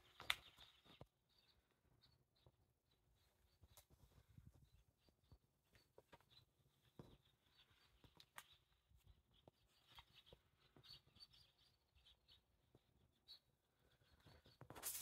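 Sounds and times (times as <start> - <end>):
small ticks and clicks: 8.0 - 8.7.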